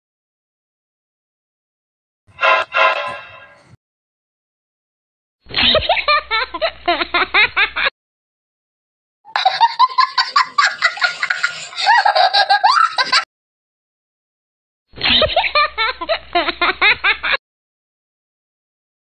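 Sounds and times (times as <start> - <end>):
person laughing: 9.3 - 13.3.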